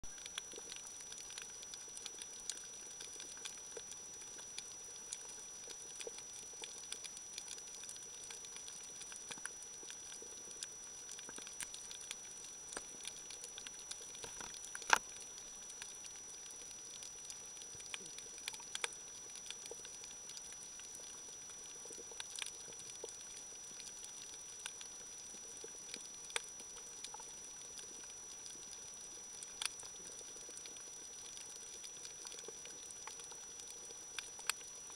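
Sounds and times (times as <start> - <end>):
snapping shrimp clicks and pops: 11.2 - 15.2.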